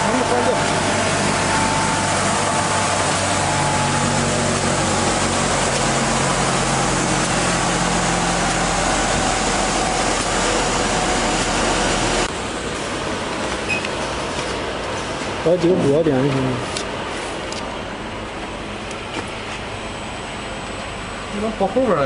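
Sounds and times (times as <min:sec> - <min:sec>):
sanding machine running: 0:00.0 - 0:12.4.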